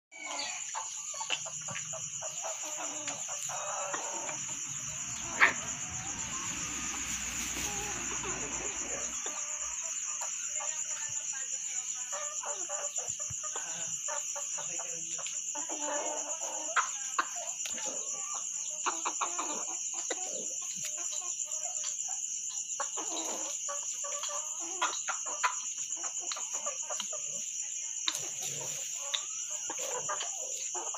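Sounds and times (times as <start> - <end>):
high-pitched insect chorus: 0.1 - 30.9
chickens clucking softly: 0.2 - 30.9.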